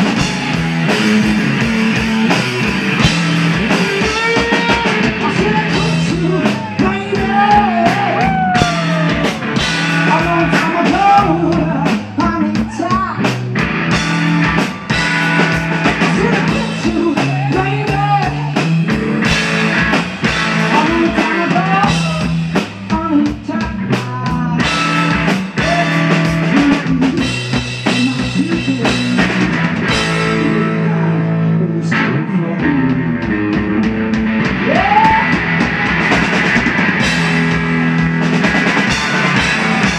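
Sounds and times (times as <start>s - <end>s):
drum kit beat: 0.0s - 31.0s, 32.6s - 39.9s
electric guitar: 0.0s - 39.9s
man singing: 3.8s - 13.4s, 16.0s - 19.4s, 20.5s - 33.1s.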